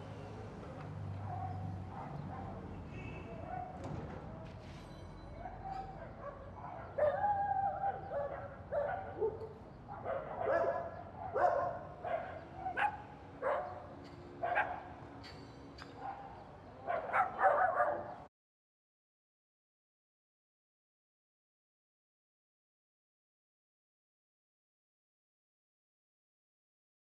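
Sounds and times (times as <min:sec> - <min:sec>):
dogs barking and yelping: 0:01.2 - 0:02.7, 0:05.3 - 0:18.3.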